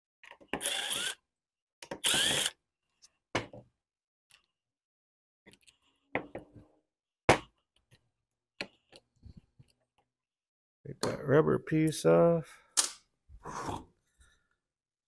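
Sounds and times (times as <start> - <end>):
cordless drill whining: 0.6 - 1.2, 2.0 - 2.6.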